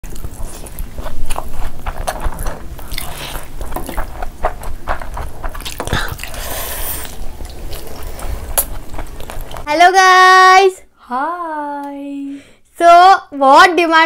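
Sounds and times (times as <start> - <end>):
people biting and chewing: 0.0 - 9.7.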